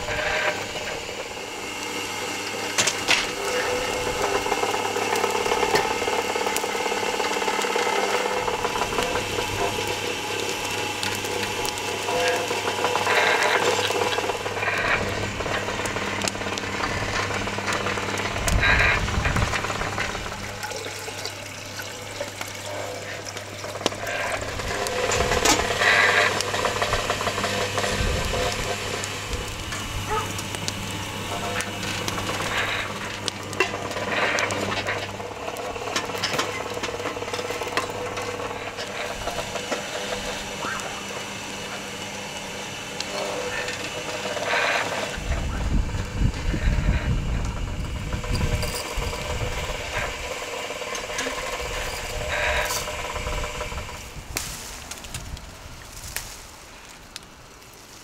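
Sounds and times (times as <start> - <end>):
rotisserie motor humming: 0.0 - 58.0
chain drive clicks and knocks: 23.6 - 29.0.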